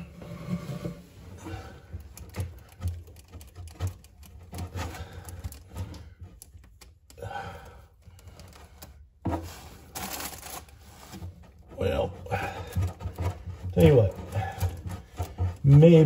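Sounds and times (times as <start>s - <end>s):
tools clicking and tapping: 1.8s - 9.0s, 12.5s - 16.0s.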